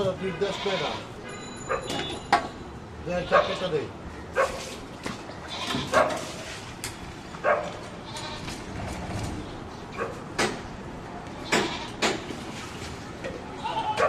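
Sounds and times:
goats bleating: 0:00.0 - 0:01.1, 0:05.4 - 0:06.0, 0:08.0 - 0:08.6, 0:13.4 - 0:14.0.

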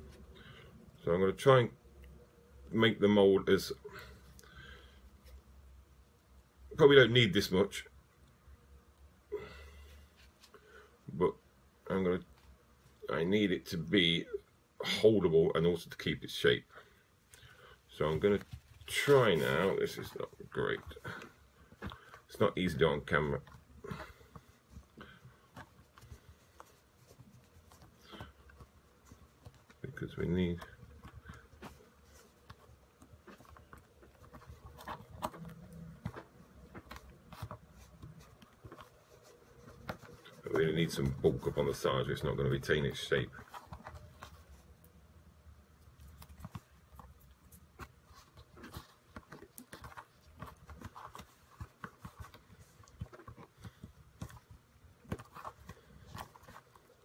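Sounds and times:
low room hum: 0:00.0 - 0:57.0
small clicks taps and rubs: 0:17.3 - 0:45.0, 0:45.7 - 0:57.0.

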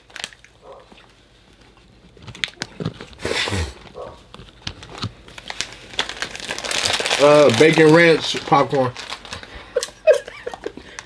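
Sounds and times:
plastic bags crinkling: 0:00.0 - 0:01.1, 0:02.1 - 0:03.2, 0:03.8 - 0:11.0
popcorn being chewed: 0:00.0 - 0:11.0.

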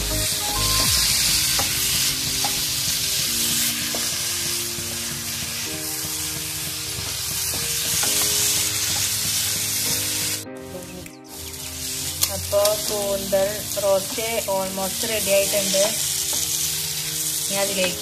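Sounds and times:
food sizzling in a frying pan: 0:00.0 - 0:18.0.

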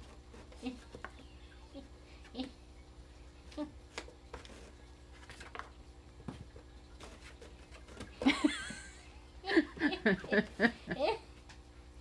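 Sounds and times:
cats pawing in cardboard box: 0:00.0 - 0:01.2, 0:03.9 - 0:08.4.

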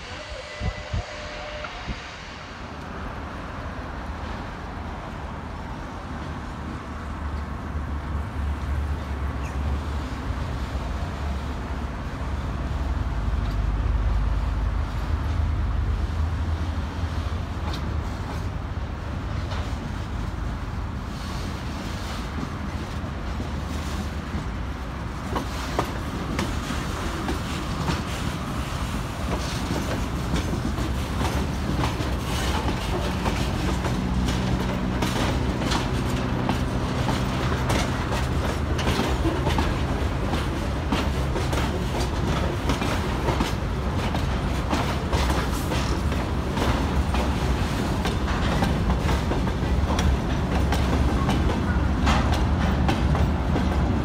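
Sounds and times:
train wagons clattering on rails: 0:16.4 - 0:54.0.

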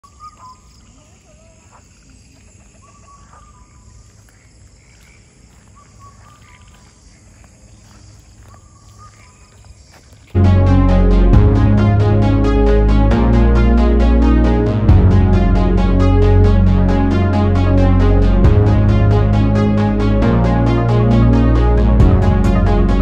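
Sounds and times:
bird calling: 0:00.0 - 0:09.8
faint forest background hiss: 0:00.0 - 0:11.3.

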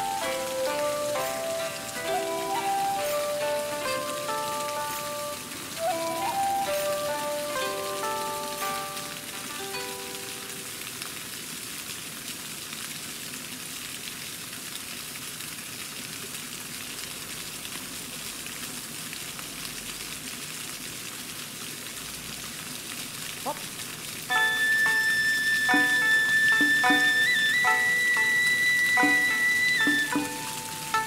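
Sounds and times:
fountain splashing into pond: 0:00.0 - 0:31.0.

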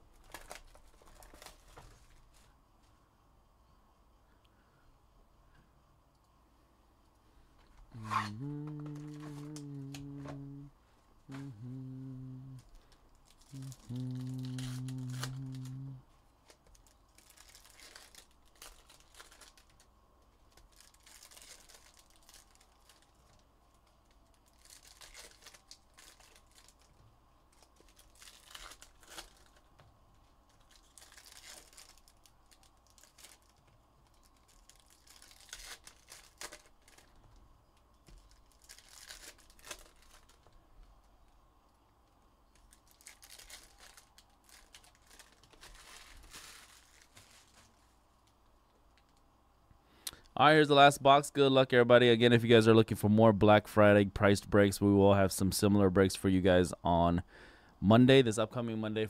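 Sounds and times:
wrappers crinkling and tearing: 0:00.1 - 0:02.5, 0:07.9 - 0:10.7, 0:11.3 - 0:41.1, 0:42.5 - 0:48.0.

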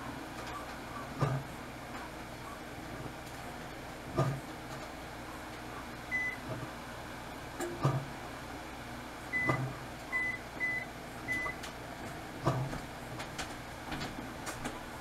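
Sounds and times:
keypad beeps: 0:06.1 - 0:06.4, 0:09.4 - 0:09.6, 0:10.2 - 0:11.6.

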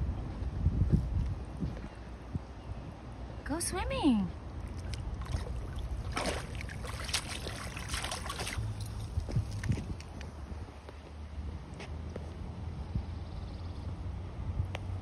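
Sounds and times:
dog splashing in water: 0:04.7 - 0:09.8.

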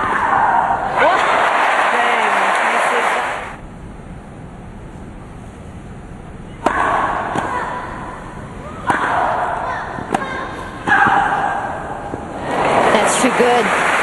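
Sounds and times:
tennis racket hitting ball: 0:06.6 - 0:08.1, 0:08.8 - 0:12.8.

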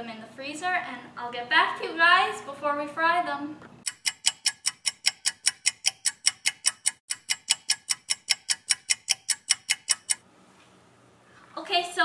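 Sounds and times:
fast clock ticking: 0:03.8 - 0:10.2.

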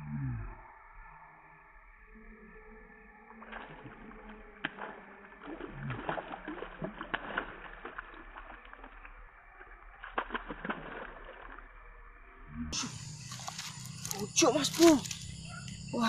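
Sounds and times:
fish splashing at water surface: 0:03.3 - 0:11.9, 0:12.8 - 0:15.5.

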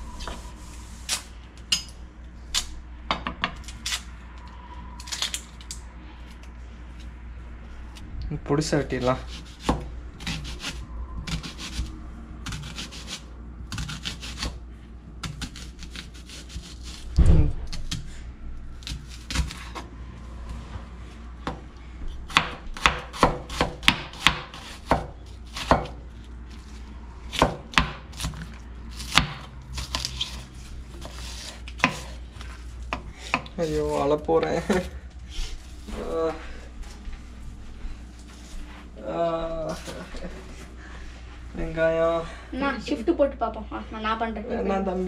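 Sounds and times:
knife chopping on wooden board: 0:22.3 - 0:26.0, 0:27.3 - 0:28.4, 0:29.0 - 0:30.1, 0:31.0 - 0:32.2, 0:32.9 - 0:33.5.

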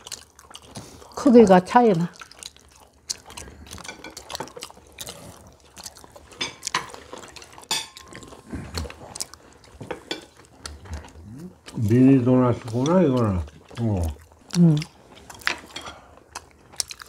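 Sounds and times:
people chewing food: 0:00.0 - 0:17.0
cutlery tapping on plates: 0:06.4 - 0:06.9, 0:07.7 - 0:08.1.

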